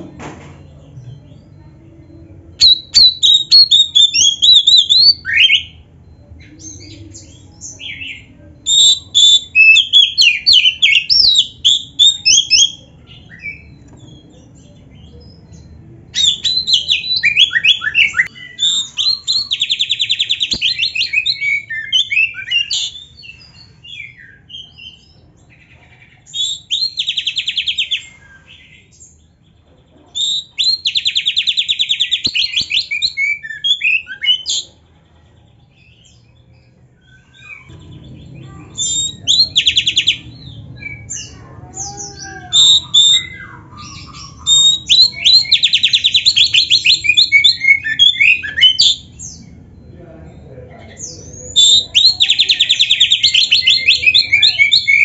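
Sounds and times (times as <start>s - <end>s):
songbird trilling and whistling: 2.6s - 29.2s, 30.1s - 34.7s, 37.0s - 49.6s, 51.0s - 55.0s
low background hum: 34.6s - 54.6s.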